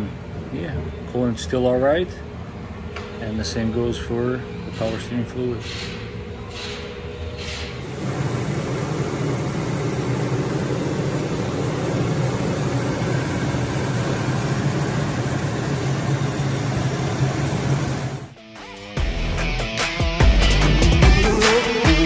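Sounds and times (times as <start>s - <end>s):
truck engine idling: 7.8s - 18.4s.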